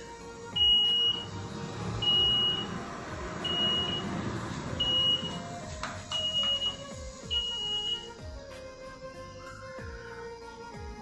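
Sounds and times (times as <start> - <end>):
vending machine beeping: 0.6 - 1.4, 2.0 - 2.8, 3.4 - 4.2, 4.8 - 8.1.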